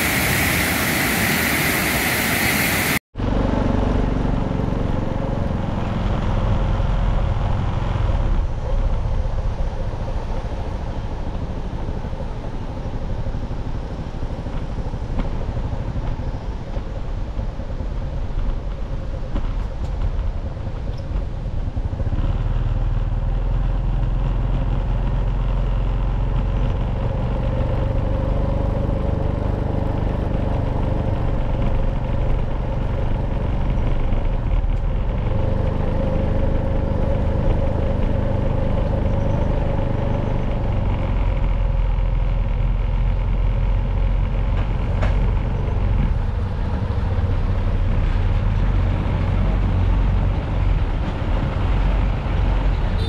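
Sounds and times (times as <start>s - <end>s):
water rushing over spillway: 0.0s - 3.0s
motorcycle engine running: 3.2s - 53.0s.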